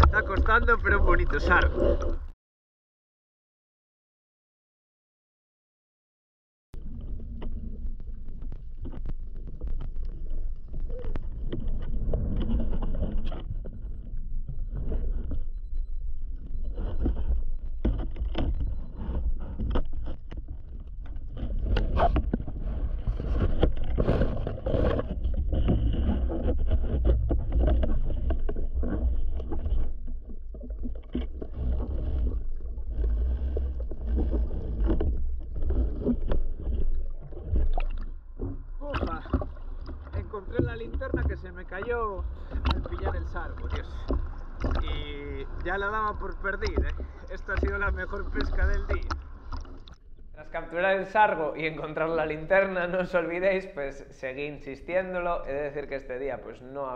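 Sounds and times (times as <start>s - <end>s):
underwater rumble of moving water: 0.0s - 2.4s, 6.8s - 56.9s
bubbles rising underwater: 30.5s - 41.6s.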